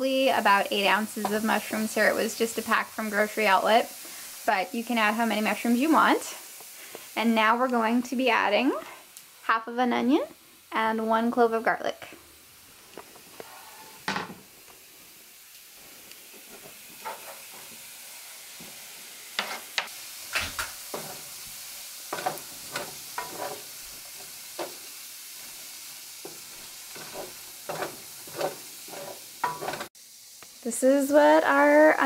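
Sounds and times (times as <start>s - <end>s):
vegetables sizzling in a frying pan: 0.0s - 32.0s
wooden spoon scraping a pan: 0.5s - 4.2s, 13.0s - 14.3s, 16.3s - 17.9s, 19.4s - 29.9s.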